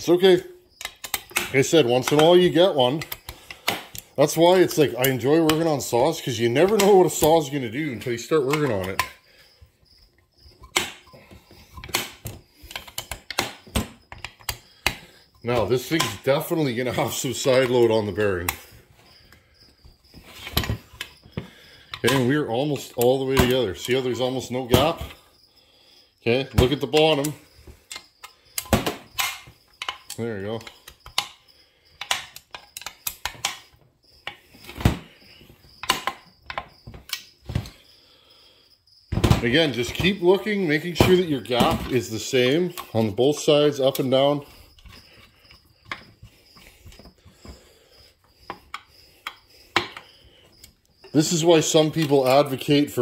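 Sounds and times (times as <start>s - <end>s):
metal parts clinking on workbench: 8.4s - 9.2s
heavy thump of part set down: 39.1s - 39.5s.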